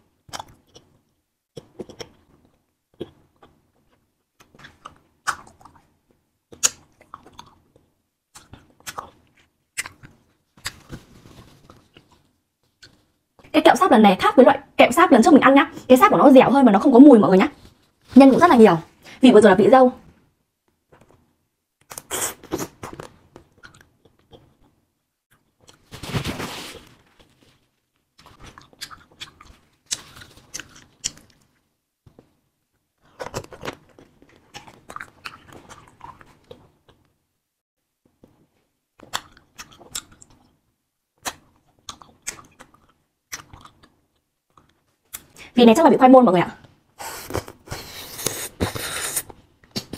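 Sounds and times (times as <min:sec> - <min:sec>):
person chewing wax candy: 0:00.2 - 0:05.9, 0:06.5 - 0:11.0, 0:21.8 - 0:25.9, 0:28.2 - 0:32.3, 0:33.0 - 0:37.1, 0:39.0 - 0:40.6, 0:41.2 - 0:45.4, 0:47.0 - 0:49.9.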